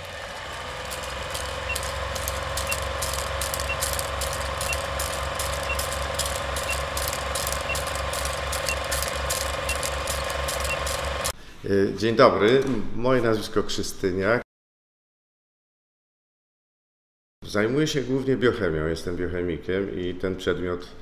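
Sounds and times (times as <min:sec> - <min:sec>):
film projector clatter: 0:00.0 - 0:11.4
short high beeps: 0:01.4 - 0:09.0.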